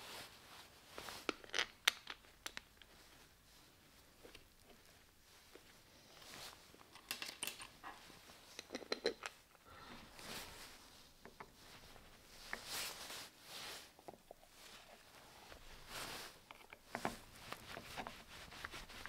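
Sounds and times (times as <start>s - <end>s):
soft rubbing and scraping: 2.9s - 6.8s, 9.5s - 19.0s.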